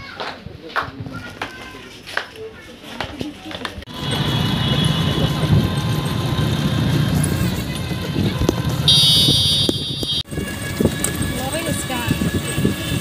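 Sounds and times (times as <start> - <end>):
passing motorcycles and vehicles rumble: 3.9 - 13.0
shrill steady tone: 8.9 - 13.0.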